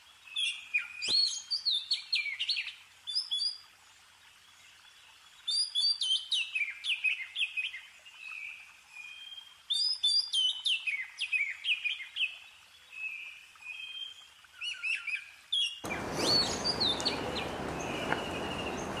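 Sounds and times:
songbird chirps: 0.0 - 19.0
steady background hiss: 10.4 - 19.0
thin held whistles: 15.8 - 19.0.

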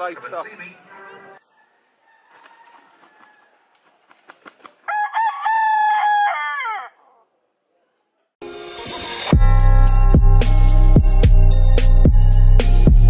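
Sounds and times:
rooster crowing: 1.4 - 3.7, 4.8 - 7.3
rooster flapping wings: 2.3 - 5.0.

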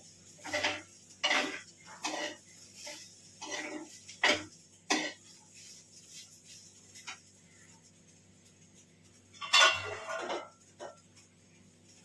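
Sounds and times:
spatula scraping a wok: 0.0 - 7.4, 9.3 - 11.0.

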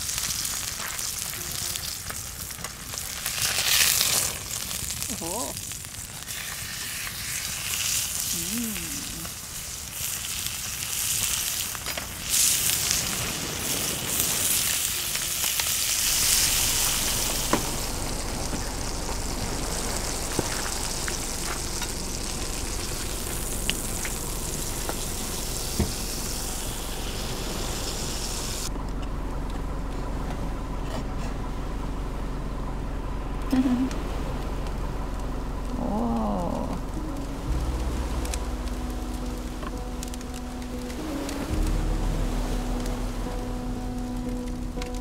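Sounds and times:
food sizzling in a pan: 0.0 - 28.7
low steady hum: 0.0 - 45.0.

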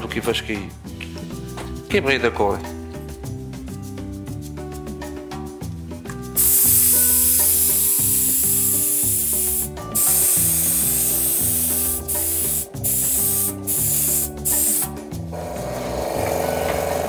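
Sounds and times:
spray gun hissing: 6.4 - 15.0.

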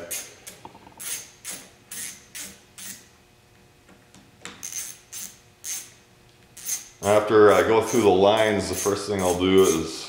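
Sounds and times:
screwdriver clicking rasp: 4.6 - 5.9, 7.8 - 9.8.

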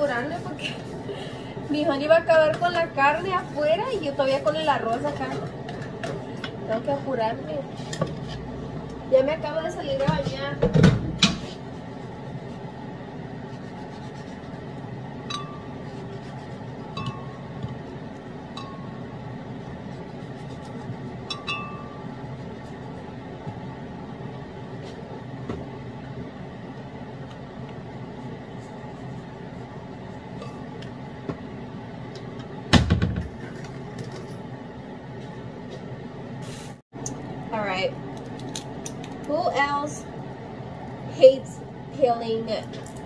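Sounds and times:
steady low hum: 0.0 - 43.0
knife clinking against glass: 21.3 - 21.9.

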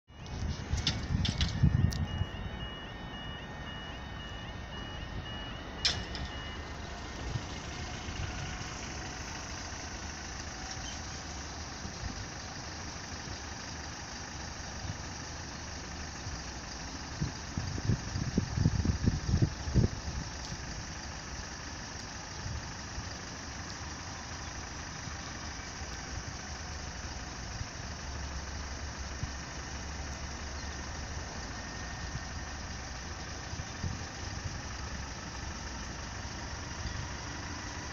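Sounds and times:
level crossing alarm tones: 0.1 - 9.8
truck engine rumbling: 0.1 - 37.9
vehicle engine idling: 0.1 - 37.9.

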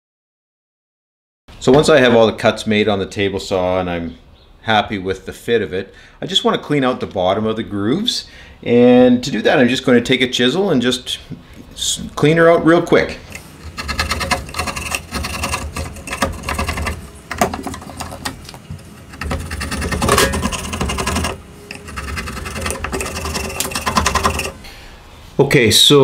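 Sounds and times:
chisel scraping wood: 13.3 - 24.6.

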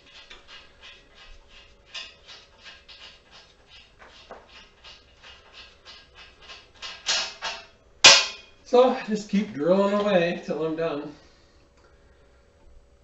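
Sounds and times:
scratching strokes on steel: 0.0 - 8.6.

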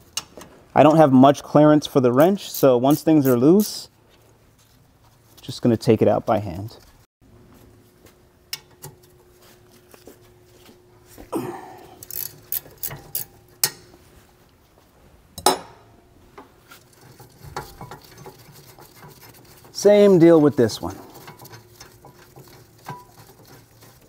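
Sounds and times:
wrench scraping metal: 2.2 - 3.9, 12.0 - 13.8, 16.7 - 24.0.

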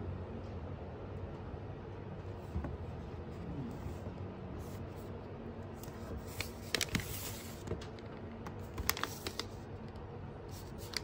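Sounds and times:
paper bag rustling: 5.8 - 7.8, 8.6 - 9.6
stiff paper crackling: 5.8 - 7.9, 8.5 - 9.7, 10.5 - 11.0.

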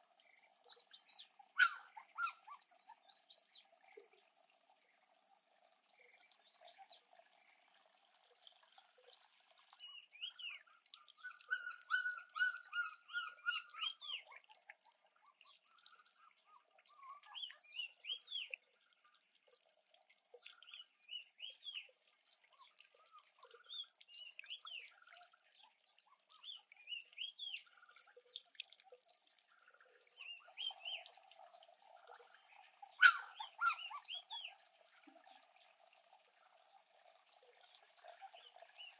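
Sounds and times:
birds chirping: 0.6 - 3.8, 30.1 - 36.1.

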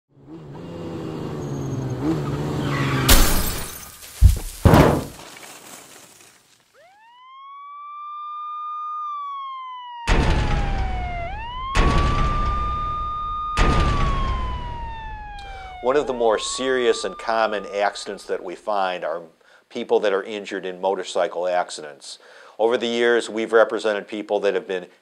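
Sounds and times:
vehicle engine revving: 0.1 - 3.1
loud crash: 3.0 - 5.2, 13.6 - 17.3
sharp impacts: 3.0 - 5.4, 10.1 - 18.1
siren wailing: 6.8 - 18.5.

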